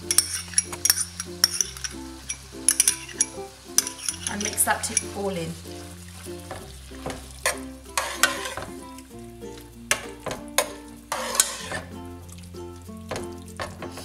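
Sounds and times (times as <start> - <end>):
metal spoon scraping a pot: 0.0 - 5.4, 7.3 - 8.8, 10.6 - 11.9
background music: 0.0 - 14.0
food sizzling: 0.0 - 14.0.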